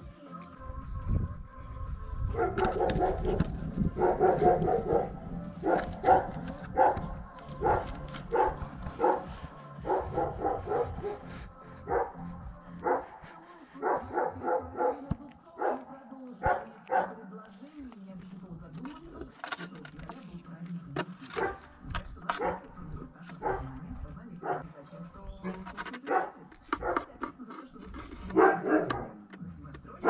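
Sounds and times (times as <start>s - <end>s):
dog barking: 2.3s - 13.2s, 13.8s - 17.3s, 21.4s - 21.6s, 22.4s - 22.7s, 23.4s - 23.8s, 24.4s - 24.7s, 26.0s - 27.1s, 28.2s - 29.2s.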